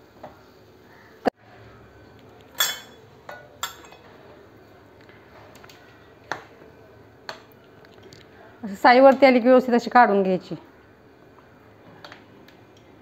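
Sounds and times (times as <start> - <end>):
metal ladle clinking on a pan: 2.6 - 4.0.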